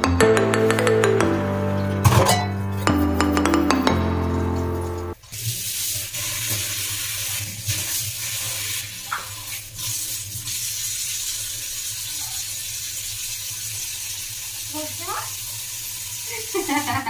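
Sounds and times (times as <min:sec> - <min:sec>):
background music: 0:00.0 - 0:05.2
dishes clinking: 0:02.0 - 0:02.6.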